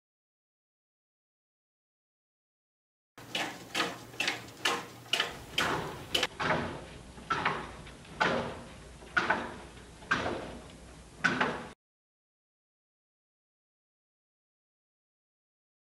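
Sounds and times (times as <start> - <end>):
plastic feet knocking on wood: 3.2 - 6.6.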